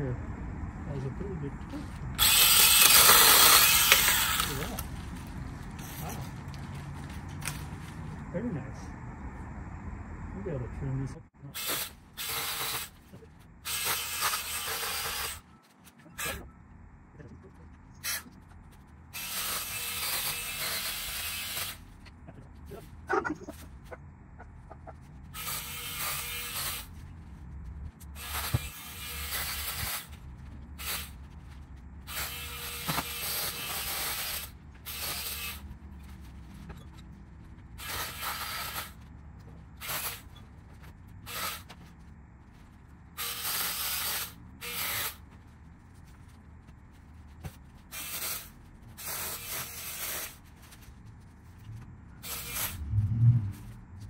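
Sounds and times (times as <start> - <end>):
mini chainsaw running: 2.2 - 4.9.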